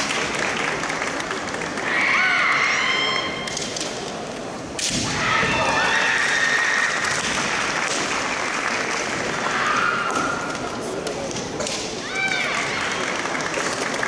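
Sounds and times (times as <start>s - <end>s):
high-pitched shouts: 1.8s - 3.4s
bamboo sword strike crack: 4.8s - 5.2s.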